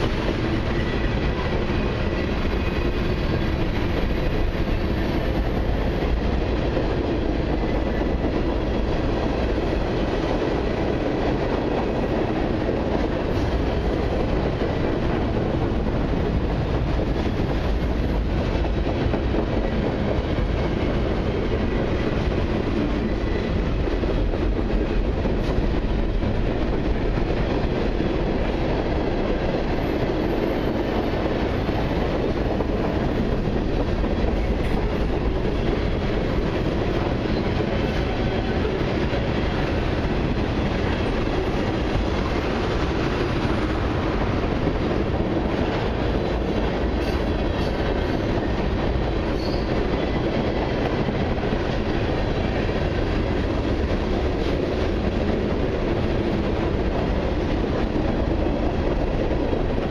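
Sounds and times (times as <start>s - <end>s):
freight train rolling past: 0.0s - 59.9s
steel wheels clacking over rail joints: 0.0s - 59.9s.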